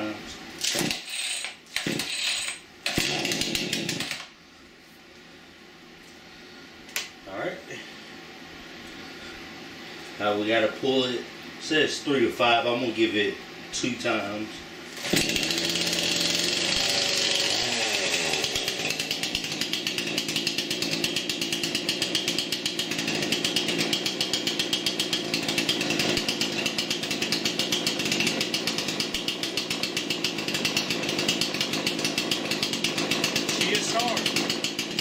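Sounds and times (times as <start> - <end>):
chainsaw engine idling: 2.8 - 4.3, 14.9 - 35.0.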